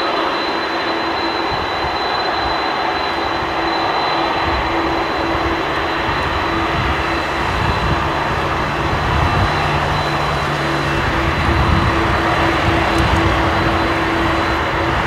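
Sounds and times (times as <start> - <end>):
high jet whine: 0.0 - 15.0
jet engines rushing: 0.0 - 15.0.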